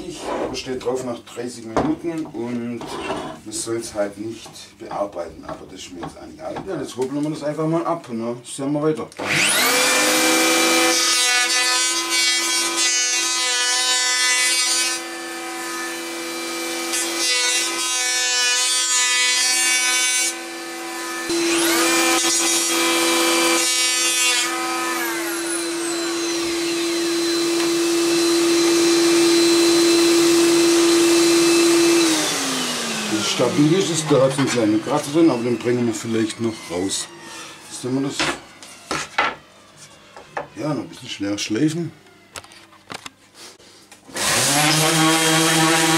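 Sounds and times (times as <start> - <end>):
electric planer motor hum: 9.2 - 12.8, 14.9 - 17.9, 20.3 - 40.6, 44.1 - 45.9
planer blades rasping wood: 9.2 - 37.9, 44.1 - 45.9.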